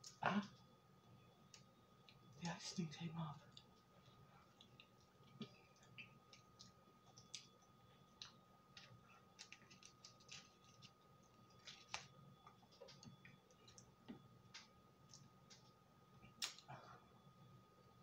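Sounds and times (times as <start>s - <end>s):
faint high whine: 0.0s - 18.0s
mouth clicks and chewing: 3.5s - 10.8s.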